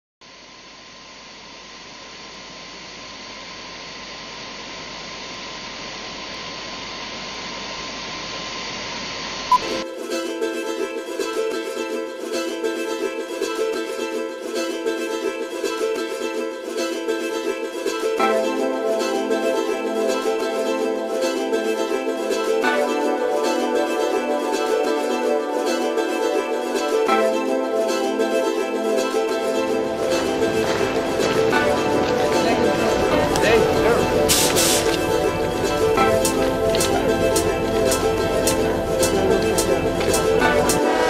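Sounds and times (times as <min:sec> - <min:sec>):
soundtrack music: 0:18.1 - 0:41.0
steady hiss: 0:29.7 - 0:41.0.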